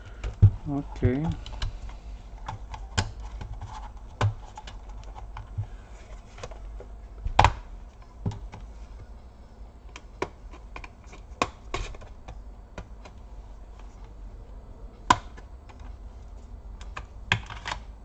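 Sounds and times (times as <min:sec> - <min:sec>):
laptop plastic and metal clicks: 0:02.4 - 0:05.6, 0:09.9 - 0:13.2, 0:15.1 - 0:15.9.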